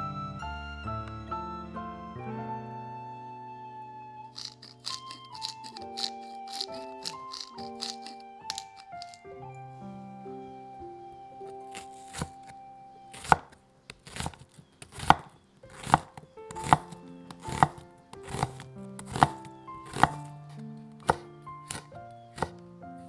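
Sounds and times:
soft background music: 0.0 - 23.0
knife chopping on wooden board: 4.4 - 9.2, 13.2 - 20.3, 21.0 - 22.6.

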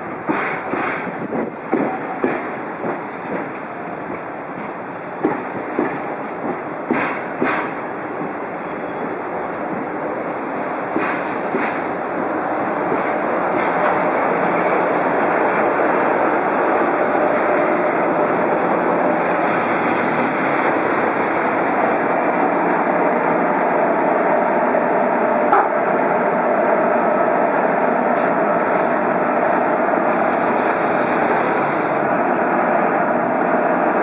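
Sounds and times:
train rumbling past: 0.0 - 34.0
wheels clacking over rail joints: 0.2 - 8.4.

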